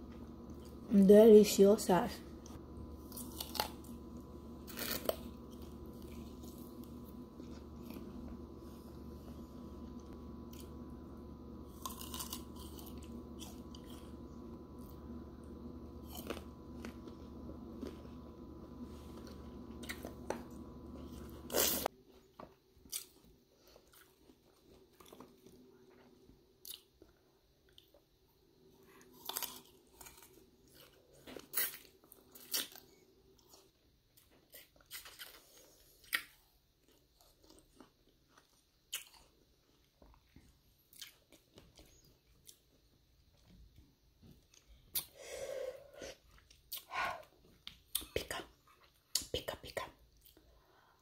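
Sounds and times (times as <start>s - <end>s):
steady hum: 0.0s - 22.4s
crunchy fruit bites and chewing: 2.3s - 28.1s, 28.8s - 43.6s.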